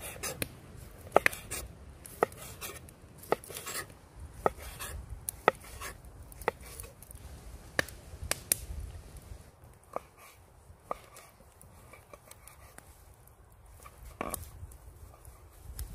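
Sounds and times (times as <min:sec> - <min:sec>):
knife slicing sausage: 0:01.1 - 0:06.9.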